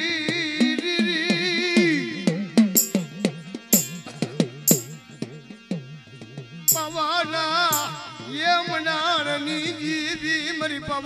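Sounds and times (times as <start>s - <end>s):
wavering melody: 2.8s - 3.2s, 3.8s - 5.0s, 6.7s - 7.2s, 7.8s - 8.4s
drum strokes: 2.8s - 5.3s, 6.7s - 8.3s
bright high crashes: 6.7s - 7.2s.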